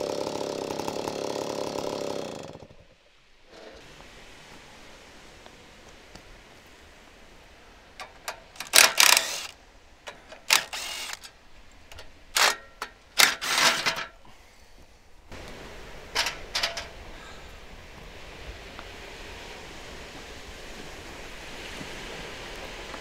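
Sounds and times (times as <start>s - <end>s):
surf and wind hiss: 2.2s - 23.0s
metallic clicks and scraping rattles: 8.0s - 14.2s, 16.1s - 17.0s.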